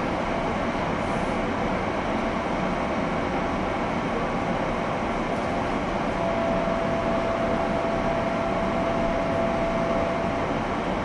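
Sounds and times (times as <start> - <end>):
electric train interior noise: 0.0 - 11.0
steady tone: 6.2 - 10.5.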